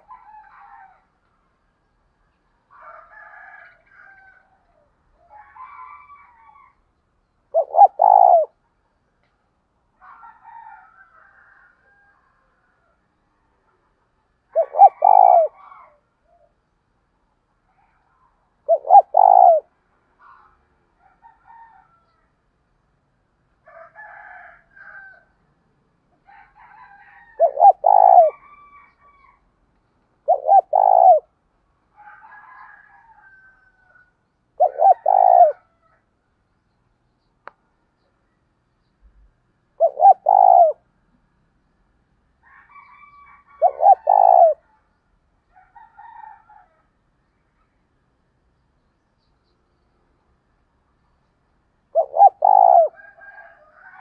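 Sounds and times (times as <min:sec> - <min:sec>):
dove cooing: 0:00.0 - 0:01.0, 0:07.5 - 0:08.6, 0:14.5 - 0:16.4, 0:17.7 - 0:20.6, 0:26.6 - 0:28.8, 0:30.2 - 0:31.3, 0:34.6 - 0:35.8, 0:39.8 - 0:40.9, 0:42.8 - 0:44.7, 0:51.9 - 0:54.0
high bird calls: 0:07.5 - 0:08.5, 0:14.6 - 0:16.0, 0:17.8 - 0:19.6, 0:27.4 - 0:28.4, 0:30.3 - 0:31.2, 0:34.6 - 0:35.6, 0:39.8 - 0:40.8, 0:51.9 - 0:52.9.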